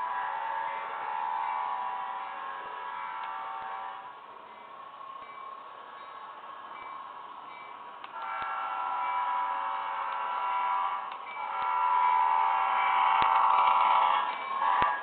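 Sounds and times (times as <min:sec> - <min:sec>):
model train chime horn: 0:00.0 - 0:15.0
wheels clicking on plastic track: 0:10.0 - 0:15.0.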